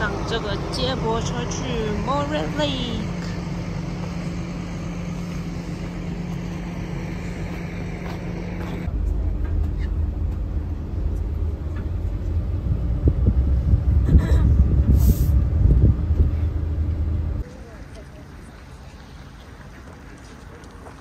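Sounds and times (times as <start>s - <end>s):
bus engine idling: 0.0s - 21.0s
deep rumble of bus driving: 0.0s - 21.0s.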